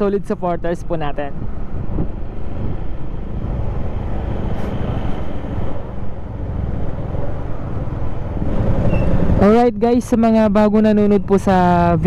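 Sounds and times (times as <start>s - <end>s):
road noise: 0.0s - 12.0s
wind on microphone: 1.3s - 9.5s.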